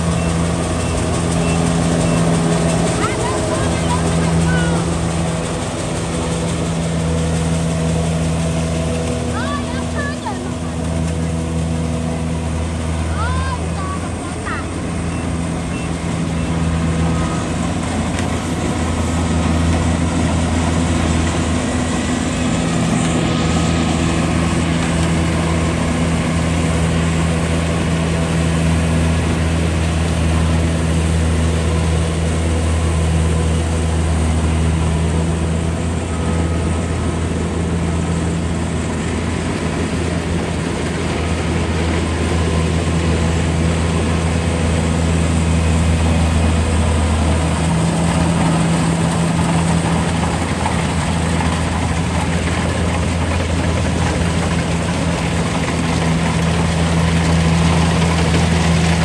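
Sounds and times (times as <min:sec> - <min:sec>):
combine harvester running: 0:00.0 - 0:59.0.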